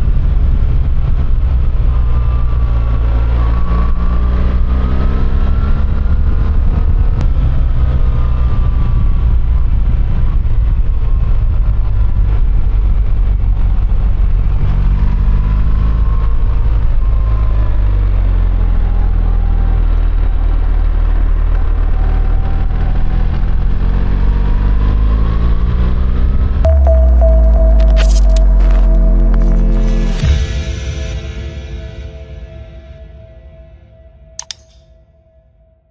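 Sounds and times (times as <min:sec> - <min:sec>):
wind and road noise: 0:00.0 - 0:26.7.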